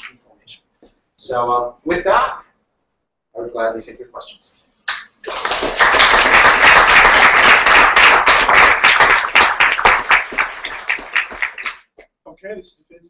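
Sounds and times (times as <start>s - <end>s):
audience applauding: 4.9s - 11.9s.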